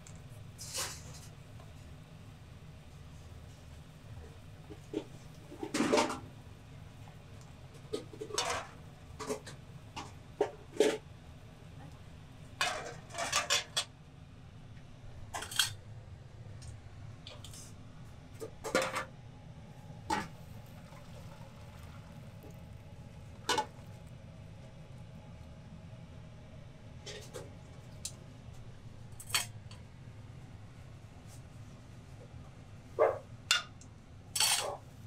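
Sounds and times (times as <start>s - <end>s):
metal utensils clanking on pots: 8.1s - 11.0s, 12.6s - 13.9s, 15.3s - 15.8s, 23.4s - 23.8s, 34.4s - 34.8s.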